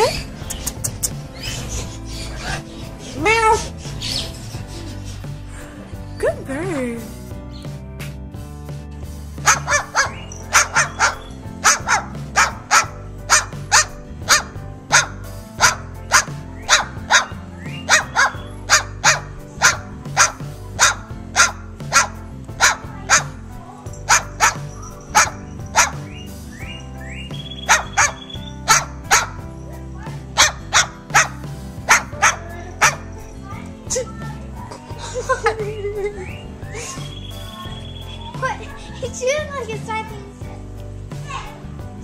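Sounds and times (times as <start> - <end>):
background music: 0.0 - 42.0
cockatoo barking: 9.4 - 23.4, 24.0 - 33.3.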